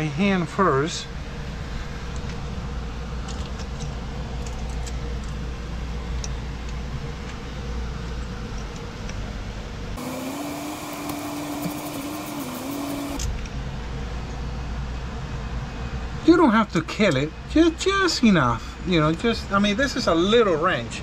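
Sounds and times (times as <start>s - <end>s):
steady background hum: 0.0s - 21.0s
wavering mechanical drone: 9.9s - 14.0s.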